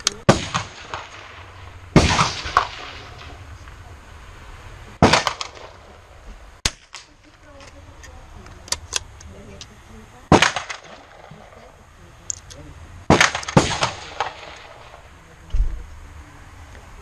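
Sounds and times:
rifle shots: 0:00.1 - 0:03.5, 0:05.0 - 0:07.2, 0:10.3 - 0:11.6, 0:13.0 - 0:15.1.

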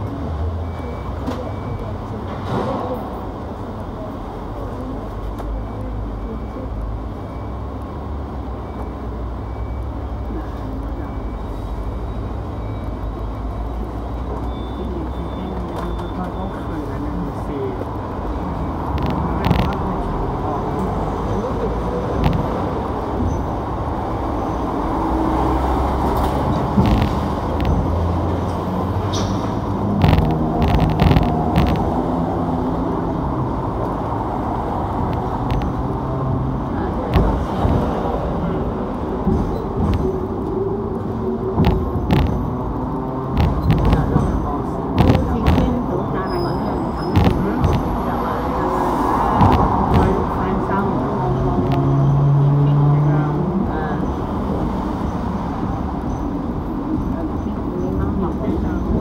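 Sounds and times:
street traffic drone: 0:00.0 - 0:59.0
tram hum and rumble: 0:00.0 - 0:59.0
wheels knocking on rails: 0:26.1 - 0:28.7, 0:29.5 - 0:32.2, 0:41.4 - 0:46.1, 0:49.4 - 0:50.6.

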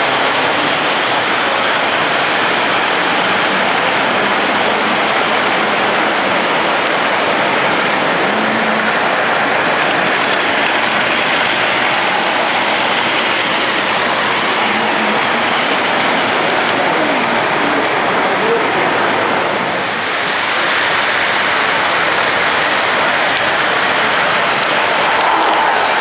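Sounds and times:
toy train wheels rattling on rails: 0:00.0 - 0:19.0.

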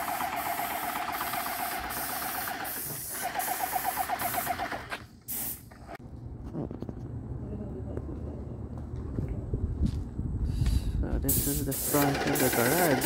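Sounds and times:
spray hiss: 0:00.0 - 0:04.6, 0:05.3 - 0:05.6, 0:11.3 - 0:13.0
paint sprayer pump chatter: 0:11.4 - 0:13.0.

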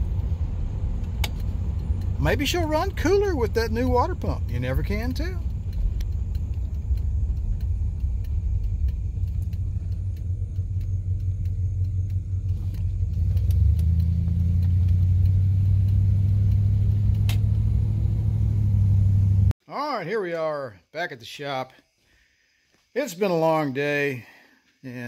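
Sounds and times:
car engine and road rumble: 0:00.0 - 0:19.6.

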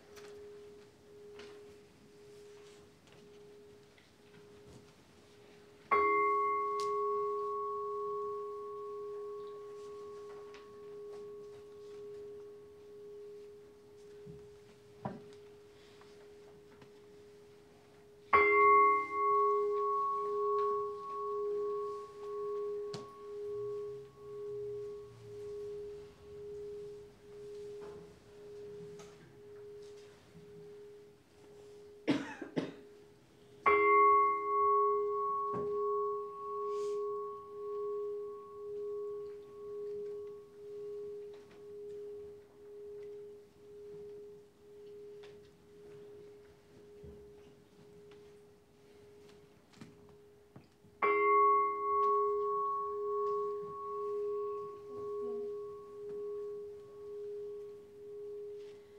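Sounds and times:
bowl bell ringing: 0:05.4 - 0:32.0, 0:33.4 - 0:49.2, 0:51.0 - 0:58.9
person coughing: 0:32.0 - 0:32.9.

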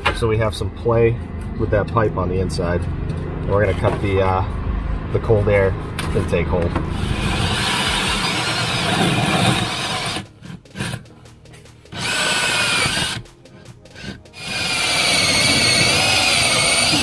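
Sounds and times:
high wavering motor whine: 0:06.9 - 0:10.2, 0:14.4 - 0:17.0
hole saw grinding into wall: 0:06.9 - 0:11.1, 0:11.9 - 0:17.0.

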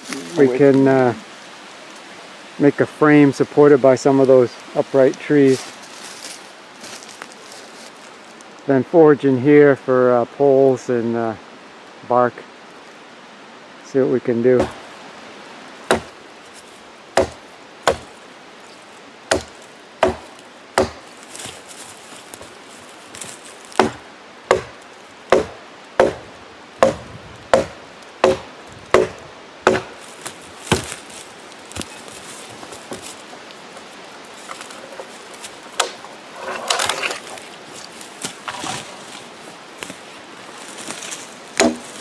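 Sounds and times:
rustle of brush and leaves: 0:00.0 - 0:42.0
axe chopping wooden pole: 0:14.6 - 0:14.8, 0:15.9 - 0:16.2, 0:17.2 - 0:18.1, 0:19.3 - 0:21.1, 0:23.8 - 0:30.0, 0:30.7 - 0:31.0, 0:35.8 - 0:36.1, 0:41.6 - 0:42.0.

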